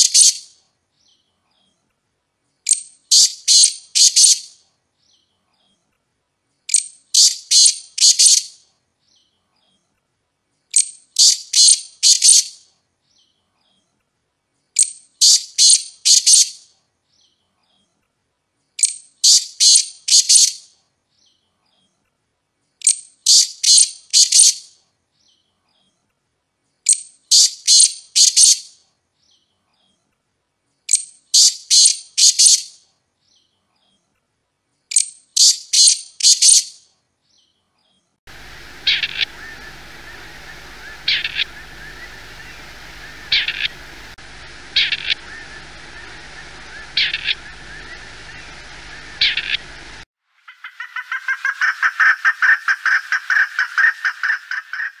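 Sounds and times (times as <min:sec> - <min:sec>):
partridge calls: 0:00.0 - 0:00.4, 0:02.7 - 0:04.5, 0:06.7 - 0:08.5, 0:10.8 - 0:12.5, 0:14.8 - 0:16.5, 0:38.3 - 0:55.0
background hiss: 0:38.2 - 0:50.4.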